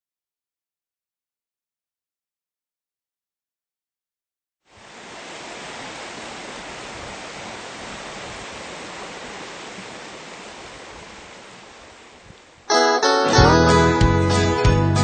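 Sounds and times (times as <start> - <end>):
creek rushing over rocks: 4.7 - 12.7
string band playing: 12.7 - 15.0.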